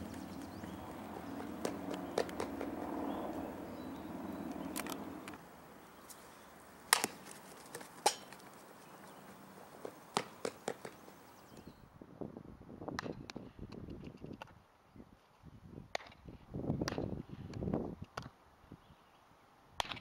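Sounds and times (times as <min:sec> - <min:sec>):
running footsteps on dirt: 0:00.0 - 0:05.3, 0:07.0 - 0:11.8
bat striking ball: 0:06.9 - 0:07.4, 0:08.0 - 0:08.4, 0:09.8 - 0:11.0.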